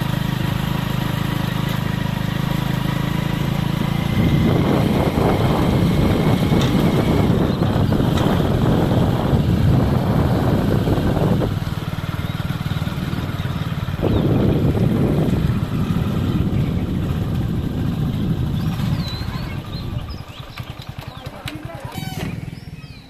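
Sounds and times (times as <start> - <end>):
motorcycle engine running: 0.0 - 23.0
wind on microphone: 3.7 - 20.6.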